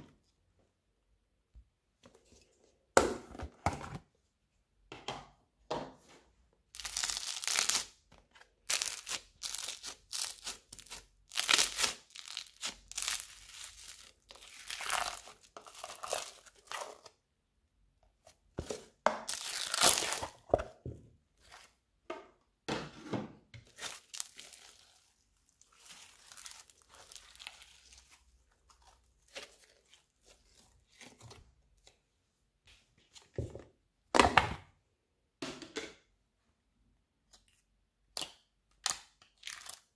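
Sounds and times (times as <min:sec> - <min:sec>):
slime squishing and crackling: 0:06.8 - 0:07.9, 0:08.6 - 0:17.0, 0:19.2 - 0:20.4, 0:23.7 - 0:31.2.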